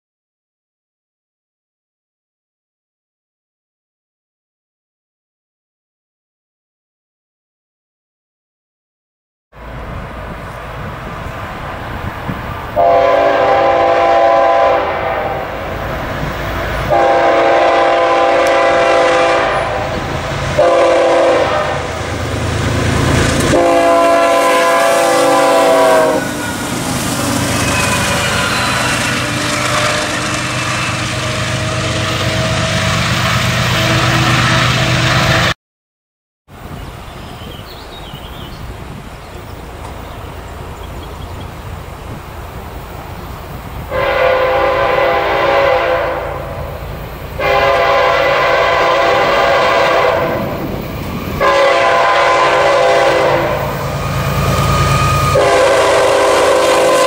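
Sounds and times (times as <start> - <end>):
train wheels on rails: 9.6 - 35.5, 36.6 - 57.0
distant train: 9.6 - 35.6, 36.5 - 57.0
locomotive air horn blasts: 12.8 - 15.7, 16.8 - 22.1, 23.5 - 35.5, 43.9 - 46.6, 47.4 - 50.6, 51.4 - 57.0.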